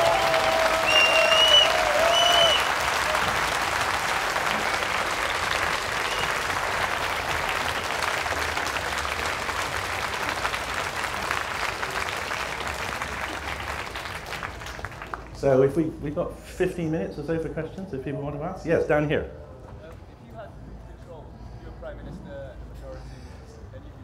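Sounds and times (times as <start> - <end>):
audience applauding: 0.0 - 15.4.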